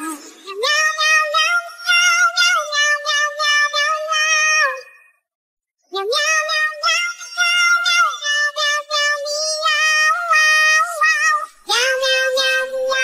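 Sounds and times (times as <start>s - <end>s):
high voice singing in meows: 0.0s - 4.9s.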